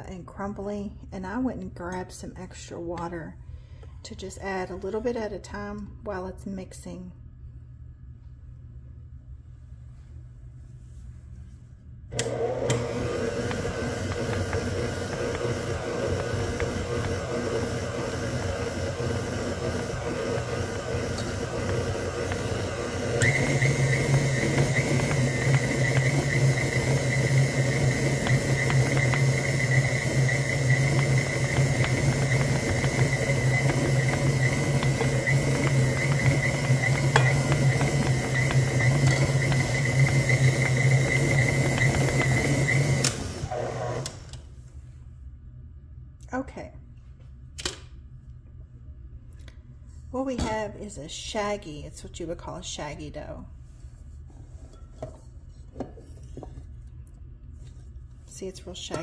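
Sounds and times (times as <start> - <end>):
stand mixer motor running: 12.2 - 44.3.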